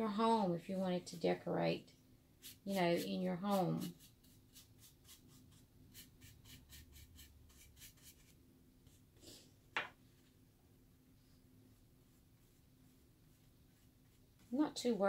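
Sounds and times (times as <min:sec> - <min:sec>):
scratchy paintbrush strokes: 0:02.4 - 0:09.4, 0:11.2 - 0:15.0.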